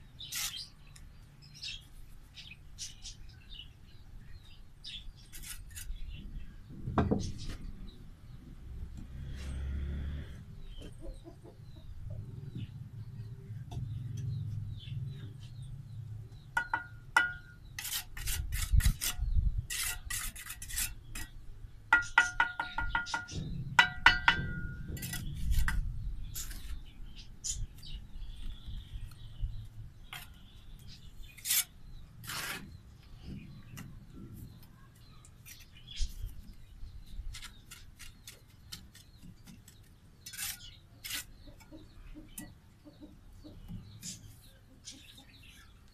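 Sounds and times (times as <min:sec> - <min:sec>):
trowel scraping metal pan: 0:00.2 - 0:00.7, 0:16.6 - 0:21.4, 0:22.0 - 0:25.8, 0:31.3 - 0:32.8, 0:40.2 - 0:41.4
trowel spreading mortar on bricks: 0:00.2 - 0:00.7, 0:05.2 - 0:06.0, 0:16.6 - 0:23.2, 0:23.8 - 0:26.8, 0:30.1 - 0:32.8, 0:37.3 - 0:41.7.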